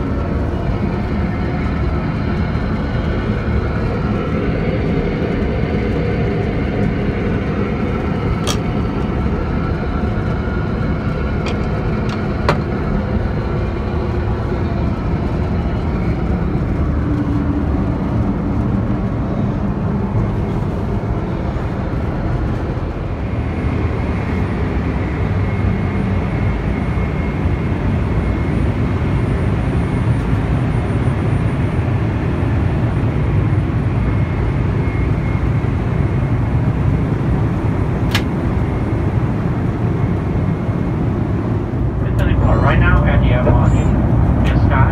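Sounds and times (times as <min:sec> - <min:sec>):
airliner cabin noise: 0:00.0 - 0:44.9
faint high whine: 0:42.0 - 0:44.9.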